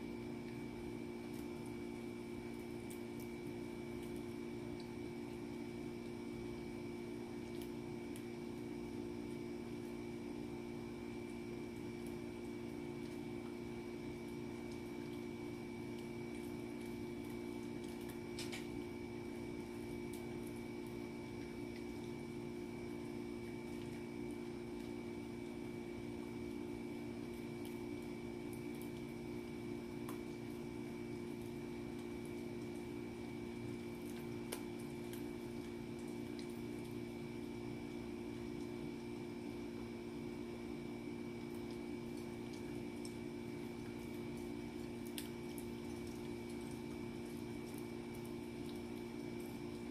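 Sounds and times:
steady hum: 0.0s - 49.9s
dog gnawing chew stick: 16.0s - 18.8s.

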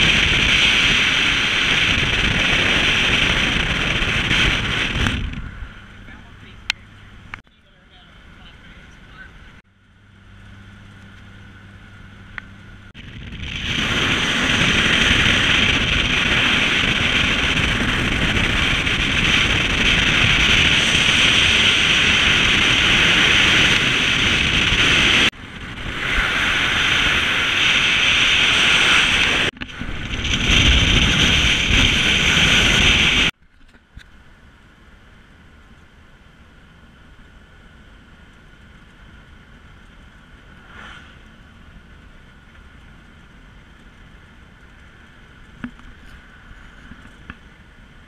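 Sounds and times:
wind rushing over microphone: 0.0s - 7.4s, 12.2s - 33.4s, 40.2s - 43.0s
road and car noise: 0.0s - 48.0s.

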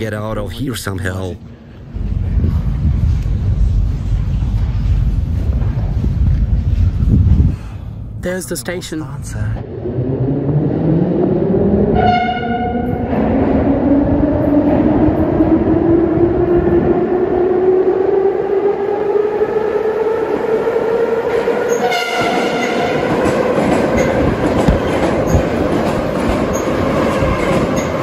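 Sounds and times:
train rumble and clattering wheels: 0.0s - 28.0s
subway train whine: 0.8s - 8.2s, 8.8s - 28.0s
train horn blast: 11.9s - 13.1s, 21.7s - 23.0s.

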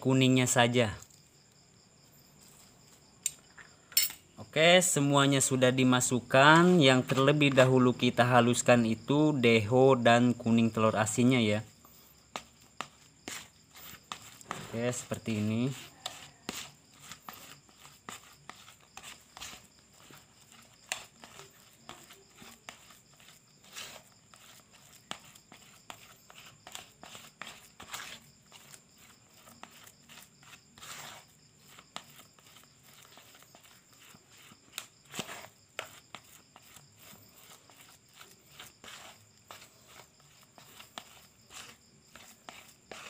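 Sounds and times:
plastic spoon scraping basin: 5.4s - 8.7s, 12.3s - 43.0s.

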